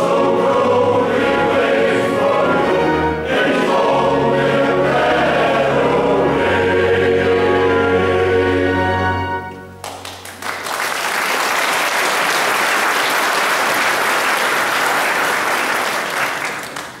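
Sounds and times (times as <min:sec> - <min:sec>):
male choir with orchestra: 0:00.0 - 0:09.8
audience applause: 0:09.8 - 0:17.0.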